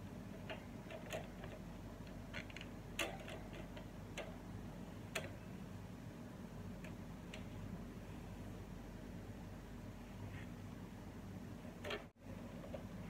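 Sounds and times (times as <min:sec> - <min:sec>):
plastic fan grille clicking: 0:00.3 - 0:04.4, 0:05.0 - 0:05.4.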